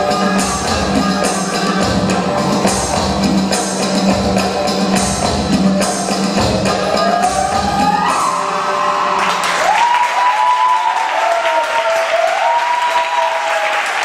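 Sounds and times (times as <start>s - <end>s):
percussion dance music with tambourine: 0.0s - 8.5s
high cheering calls: 6.8s - 14.0s
audience applauding: 7.8s - 14.0s.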